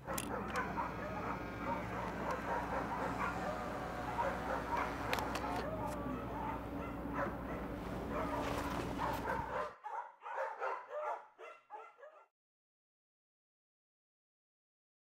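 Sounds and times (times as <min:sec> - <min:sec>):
low hum: 0:00.0 - 0:09.7.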